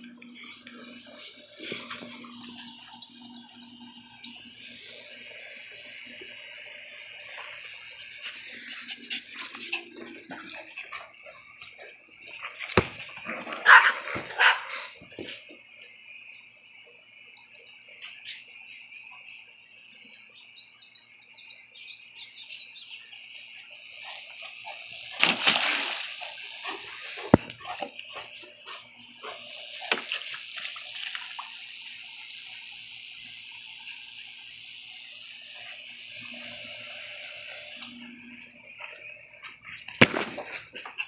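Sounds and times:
high insect drone: 0:00.0 - 0:41.0
dog splashing into pool: 0:25.1 - 0:28.2, 0:29.2 - 0:31.6.

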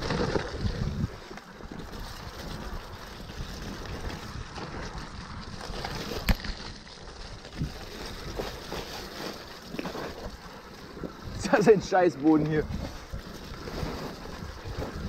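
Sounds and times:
wind on microphone: 0:00.0 - 0:06.7, 0:09.7 - 0:15.0
bike tyres rumbling: 0:00.0 - 0:15.0.

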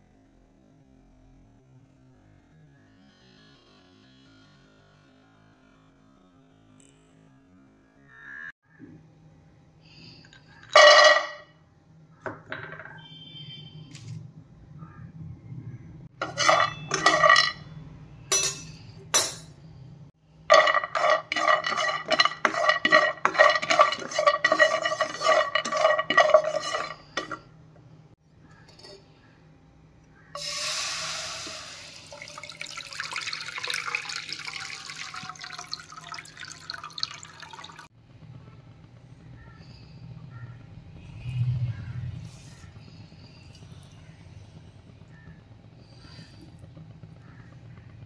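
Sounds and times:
almonds clattering in frying pan: 0:16.2 - 0:17.6, 0:20.5 - 0:27.4
rushing pouring noise: 0:30.4 - 0:37.9.

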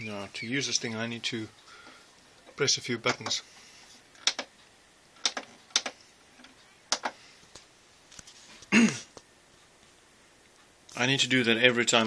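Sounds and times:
television buttons clicking: 0:03.0 - 0:03.4, 0:04.2 - 0:04.6, 0:05.2 - 0:07.2.

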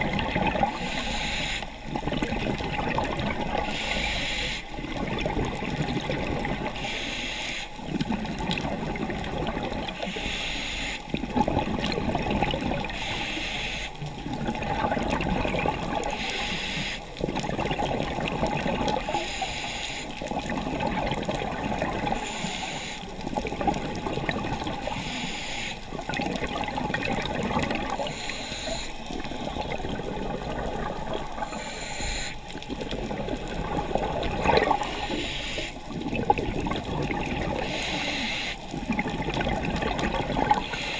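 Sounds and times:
exhaled air bubbling: 0:00.0 - 0:40.9
regulator inhalation hiss: 0:00.8 - 0:01.7, 0:03.6 - 0:04.7, 0:06.8 - 0:07.8, 0:10.0 - 0:11.0, 0:13.0 - 0:14.0, 0:16.1 - 0:17.1, 0:19.0 - 0:20.2, 0:22.1 - 0:23.1, 0:24.8 - 0:25.9, 0:28.0 - 0:29.6, 0:31.4 - 0:32.5, 0:34.8 - 0:35.8, 0:37.6 - 0:38.7, 0:40.6 - 0:40.9.

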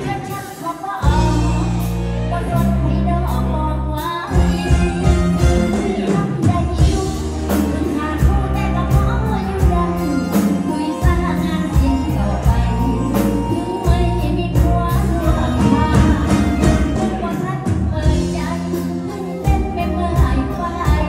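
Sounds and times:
live band with heavy bass: 0:00.0 - 0:21.0
woman singing: 0:00.0 - 0:21.0
steady drum beat: 0:04.4 - 0:21.0.

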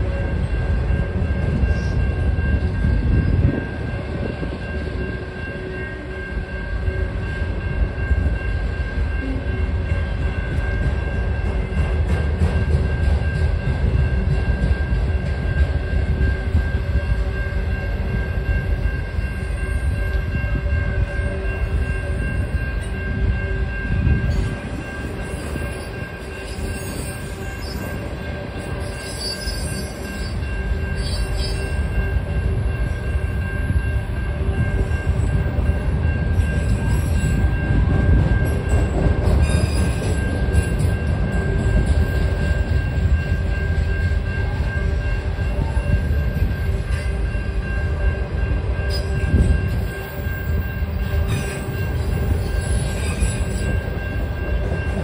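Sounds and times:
train wheels rumbling on rail: 0:00.0 - 0:55.0
high-pitched wheel squeals: 0:25.2 - 0:28.0, 0:28.6 - 0:32.0, 0:39.3 - 0:42.5, 0:48.9 - 0:54.2.

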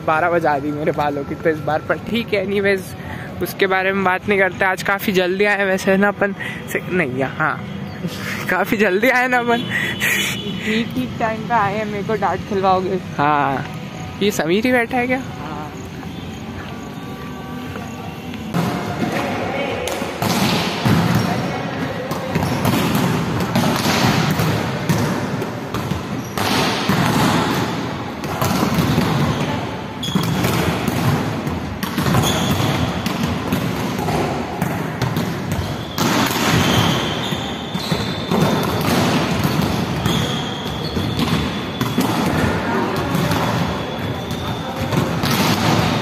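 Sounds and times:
volleyballs struck and bouncing: 0:18.4 - 0:46.0.

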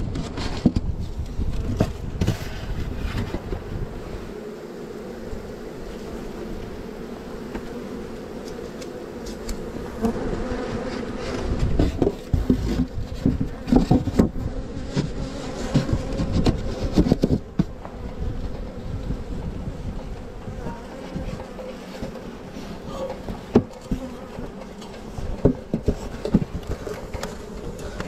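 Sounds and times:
bees buzzing: 0:01.6 - 0:28.0
knocks from handling hive box: 0:08.4 - 0:18.2, 0:23.0 - 0:28.0.

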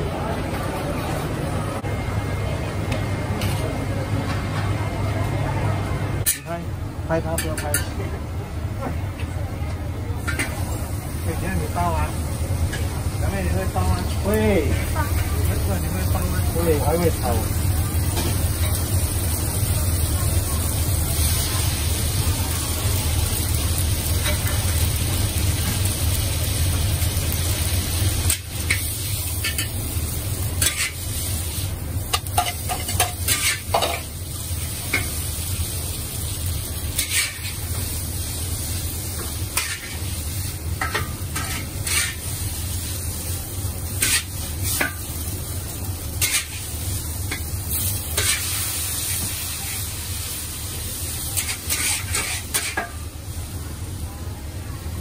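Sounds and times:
noodles sizzling in a wok: 0:06.0 - 0:55.0
metal spatula scraping a wok: 0:30.6 - 0:31.5, 0:32.2 - 0:34.1, 0:37.0 - 0:37.7, 0:39.5 - 0:40.1, 0:40.8 - 0:42.3, 0:44.0 - 0:45.0, 0:46.2 - 0:49.9, 0:51.3 - 0:52.9.

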